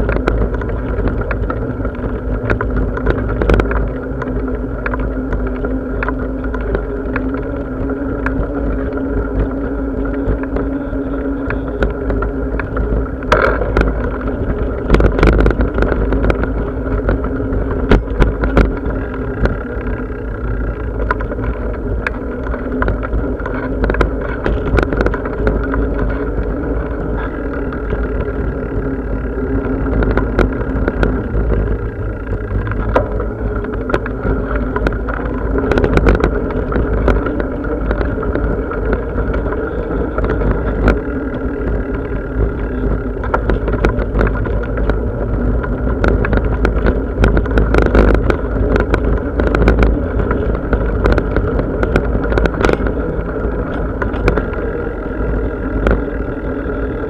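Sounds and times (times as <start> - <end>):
bicycle riding rumble: 0.0 - 57.0
small clicks and rattles: 0.0 - 57.0.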